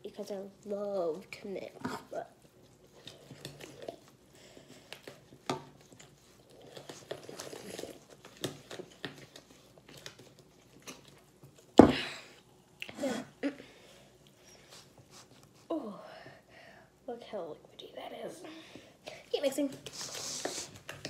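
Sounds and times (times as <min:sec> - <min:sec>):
batter stirred in ceramic bowl: 0:00.1 - 0:11.8.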